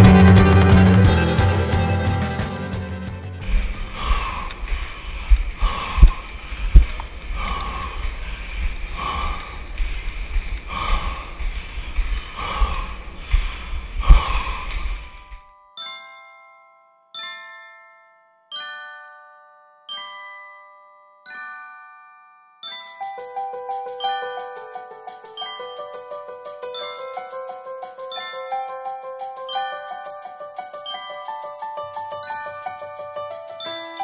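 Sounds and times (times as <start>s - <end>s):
heavy breathing: 3.4s - 15.3s
slow ringing chimes: 15.3s - 34.0s.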